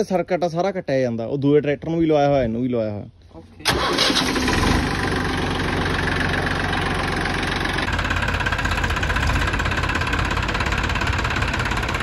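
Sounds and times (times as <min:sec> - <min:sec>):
tractor diesel engine idling: 0:03.6 - 0:12.0.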